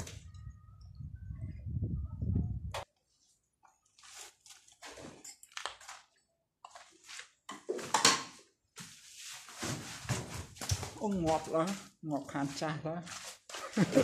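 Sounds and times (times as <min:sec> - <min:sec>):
footsteps crunching on grit: 0:10.1 - 0:14.0.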